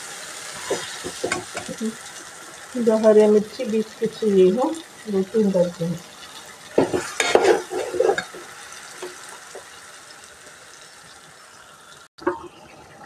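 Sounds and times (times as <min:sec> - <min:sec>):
metal spoon scraping a pot: 0:06.8 - 0:09.2.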